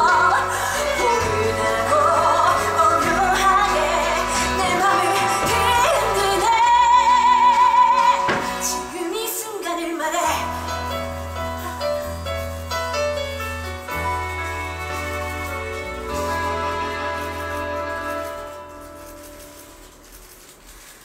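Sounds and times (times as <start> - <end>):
person singing: 0.0 - 12.0
instrumental accompaniment: 10.4 - 20.7.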